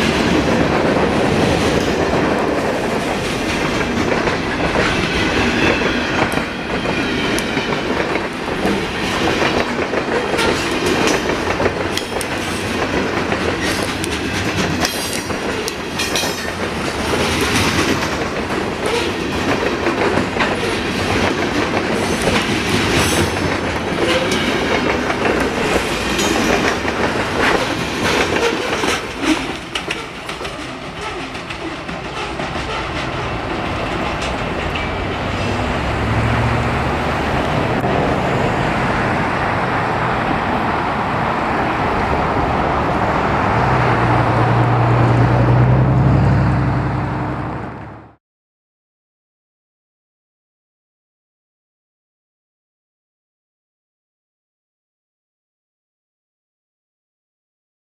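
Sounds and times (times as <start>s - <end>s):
train wheels clacking over rail joints: 0.0s - 35.8s.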